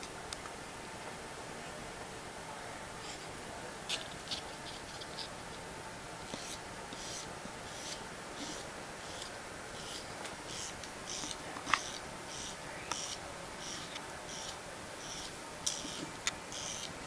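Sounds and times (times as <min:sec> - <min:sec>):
steady room hiss: 0:00.0 - 0:17.0
fingernails being trimmed: 0:06.3 - 0:17.0.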